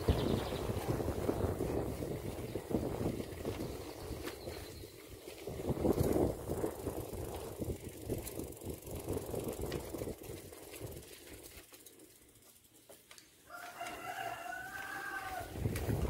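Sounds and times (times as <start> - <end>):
wind rumble on microphone: 0.0 - 11.2, 15.2 - 16.0.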